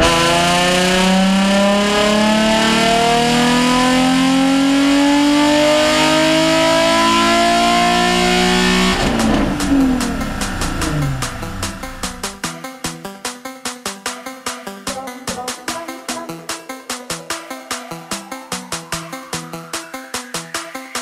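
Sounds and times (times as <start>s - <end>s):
car engine revving at full throttle: 0.0s - 12.4s.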